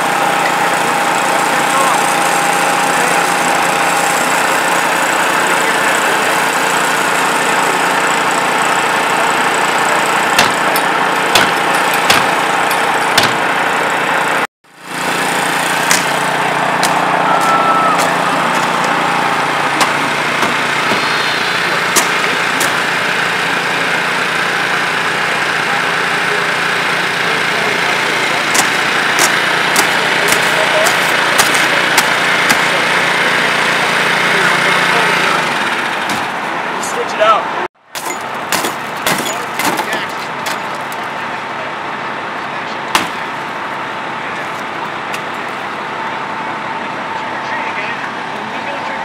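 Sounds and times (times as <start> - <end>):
small gasoline engine running: 0.0 - 37.4.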